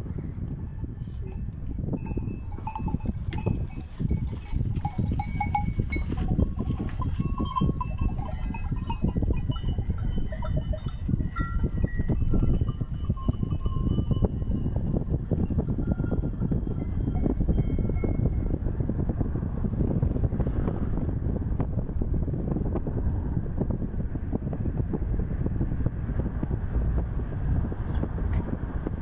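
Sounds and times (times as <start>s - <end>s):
steady low rumble: 0.0s - 29.0s
sheep bells clinking: 0.7s - 18.5s.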